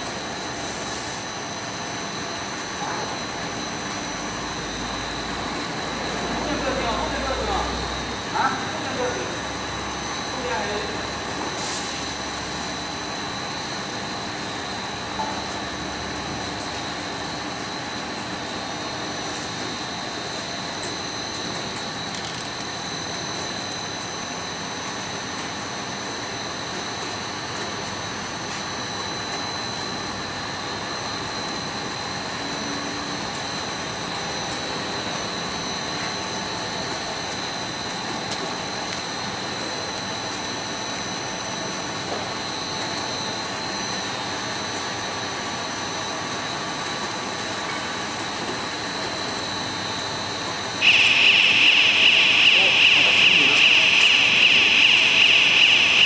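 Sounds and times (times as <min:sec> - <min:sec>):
machine humming and hissing: 0:00.0 - 0:56.0
high whine: 0:49.9 - 0:56.0.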